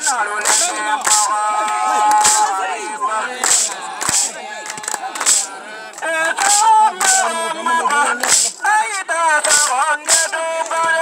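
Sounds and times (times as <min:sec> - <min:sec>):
sharp percussive cracks: 0:00.0 - 0:01.4, 0:02.1 - 0:02.6, 0:03.4 - 0:07.3, 0:08.1 - 0:11.0
voices singing: 0:00.0 - 0:11.0.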